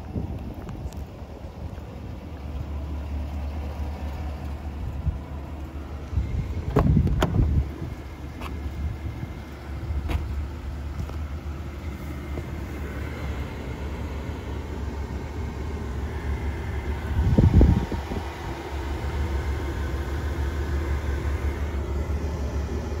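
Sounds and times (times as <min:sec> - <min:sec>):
truck engine idling: 0:00.0 - 0:23.0.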